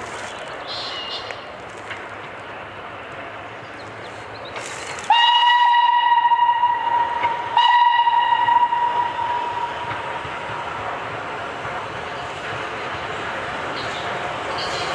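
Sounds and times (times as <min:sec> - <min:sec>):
train running noise: 0:00.0 - 0:14.9
steam locomotive whistle: 0:05.0 - 0:09.9.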